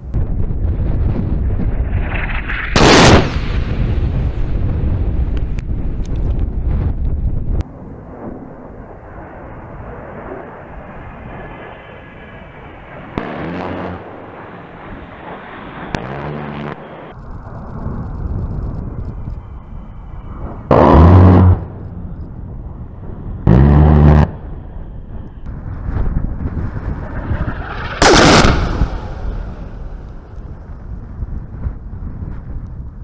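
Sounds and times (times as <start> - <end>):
rotary cannon bursts: 1.9 - 3.7, 20.7 - 21.8, 26.5 - 30.2.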